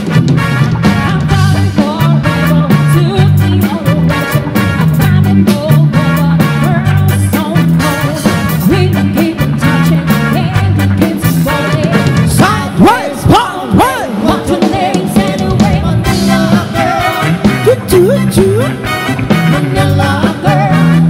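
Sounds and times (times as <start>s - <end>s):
bass line: 0.0s - 21.0s
drum kit: 0.0s - 21.0s
electric guitar: 0.0s - 21.0s
keyboard: 0.0s - 21.0s
person singing: 0.9s - 21.0s.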